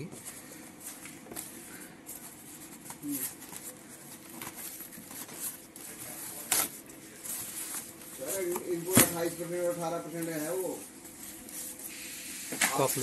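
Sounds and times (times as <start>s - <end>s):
sheets rustling and crinkling: 2.1s - 11.9s.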